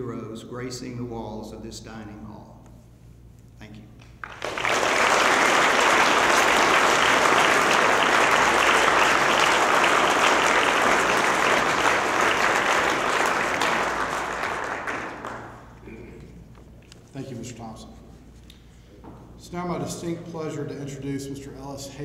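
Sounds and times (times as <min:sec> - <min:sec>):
audience applauding: 0:04.2 - 0:15.8.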